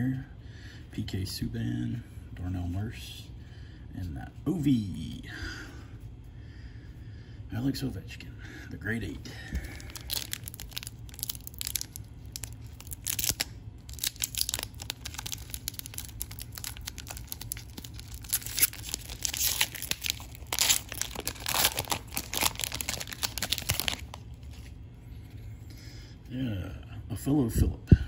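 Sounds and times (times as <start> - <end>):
foil wrapper crinkling and ripping: 9.5 - 24.8.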